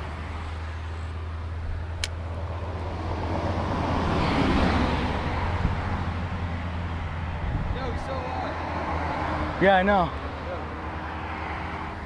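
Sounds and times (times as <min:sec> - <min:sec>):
car passing: 0:00.0 - 0:12.0
traffic rumble: 0:00.0 - 0:12.0.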